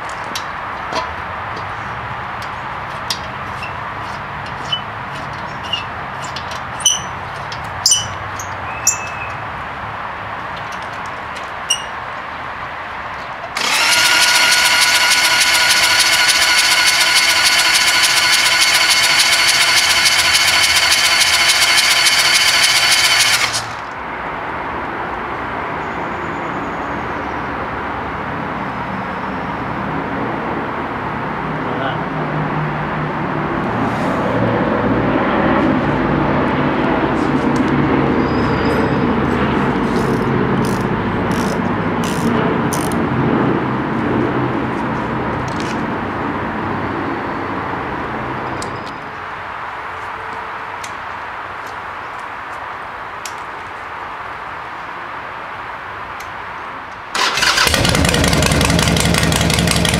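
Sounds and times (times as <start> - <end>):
electric starter cranking engine: 13.5 - 23.9, 40.0 - 43.0, 57.1 - 59.9.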